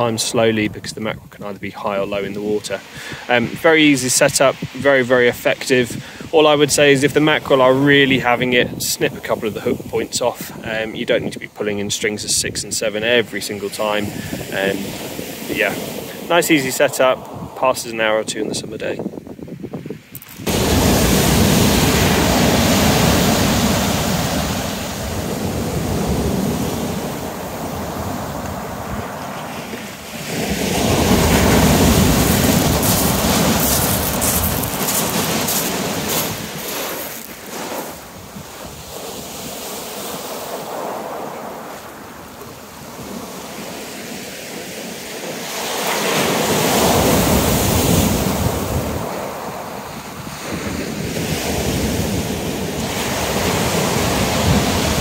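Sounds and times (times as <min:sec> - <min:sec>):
surf breaking on shingle: 0:30.9 - 0:38.0.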